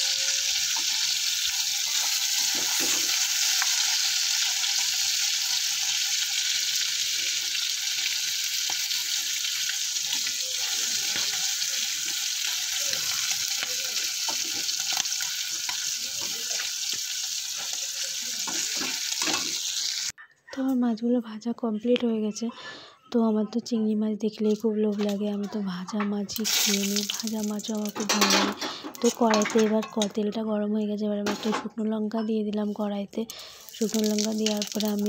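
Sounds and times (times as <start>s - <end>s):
oil crackling: 0.0s - 20.1s, 26.4s - 28.3s, 33.3s - 35.0s
prawns sizzling in hot oil: 0.0s - 20.2s, 26.4s - 29.7s, 33.4s - 35.0s
metal spatula scraping: 0.1s - 5.7s.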